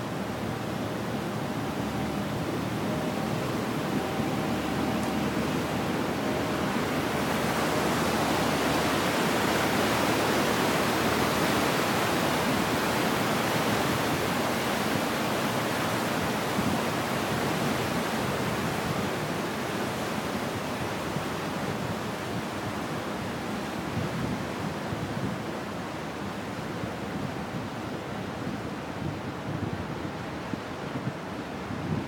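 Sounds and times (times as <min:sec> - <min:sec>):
propeller churning water: 0:00.0 - 0:29.4.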